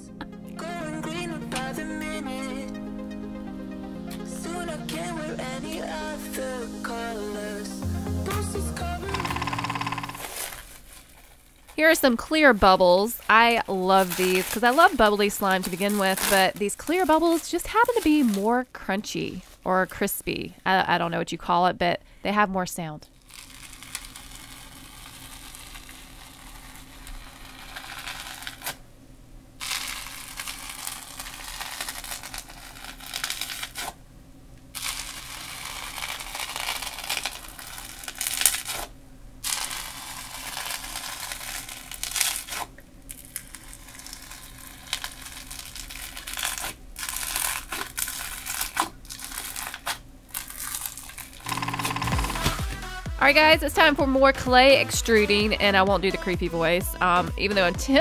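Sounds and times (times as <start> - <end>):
slime bubbles crackling and popping: 23.2 - 28.7, 29.6 - 33.9, 34.8 - 38.8, 39.4 - 51.5
hand squeezing slime: 23.2 - 28.8, 29.6 - 34.0, 34.8 - 51.5.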